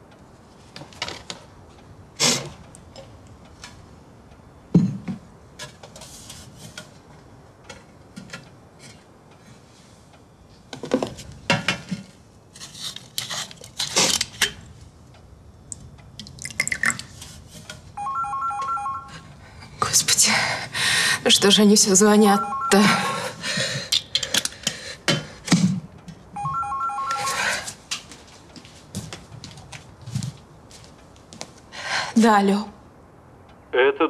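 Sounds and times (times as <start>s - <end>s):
liquid pouring into glass: 16.2s - 17.1s.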